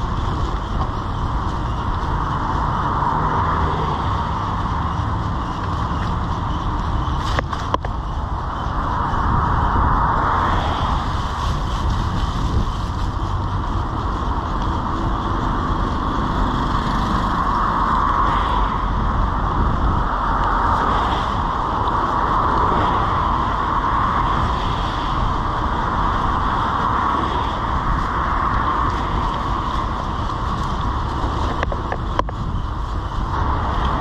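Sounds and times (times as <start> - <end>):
bicycle tyres on wet street: 0.0 - 34.0
low rumble: 0.0 - 34.0.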